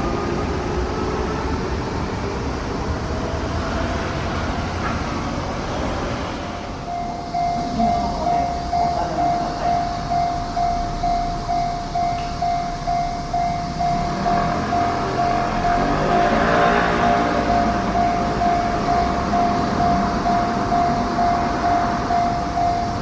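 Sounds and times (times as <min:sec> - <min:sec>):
electric train running: 0:00.0 - 0:23.0
railway crossing warning bell: 0:06.4 - 0:23.0.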